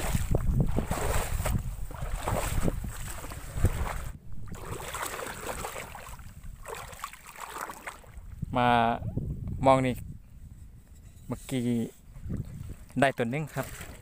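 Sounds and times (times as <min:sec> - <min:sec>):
wind buffeting microphone: 0:00.0 - 0:07.2, 0:07.8 - 0:14.0
feet wading through water: 0:00.0 - 0:08.4, 0:12.2 - 0:14.0.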